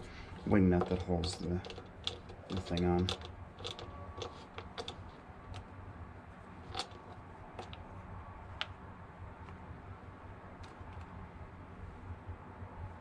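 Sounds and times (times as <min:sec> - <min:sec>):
plastic clicks: 0:00.8 - 0:05.7.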